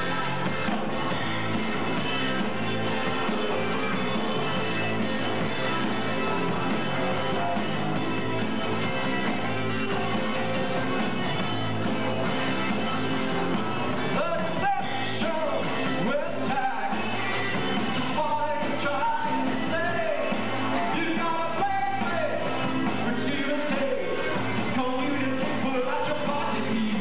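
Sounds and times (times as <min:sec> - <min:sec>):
bass guitar: 0:00.0 - 0:27.0
drums: 0:00.0 - 0:27.0
electric guitar: 0:00.0 - 0:27.0
vocalist singing: 0:13.1 - 0:27.0.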